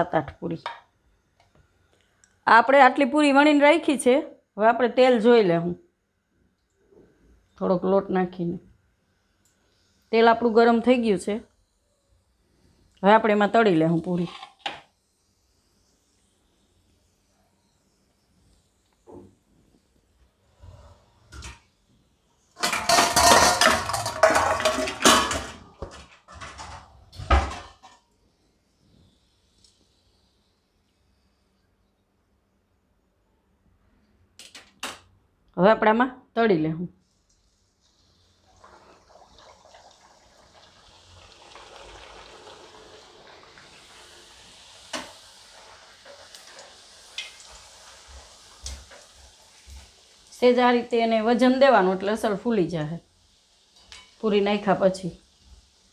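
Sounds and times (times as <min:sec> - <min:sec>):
food deep-frying in oil: 0:12.6 - 0:19.4, 0:37.0 - 0:55.9
metal utensils clattering on pots: 0:22.6 - 0:28.0.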